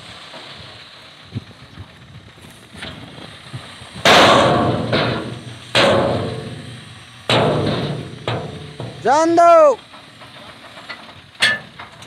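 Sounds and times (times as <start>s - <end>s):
soil pouring out: 0.0s - 12.0s
truck dump body banging: 2.7s - 12.0s.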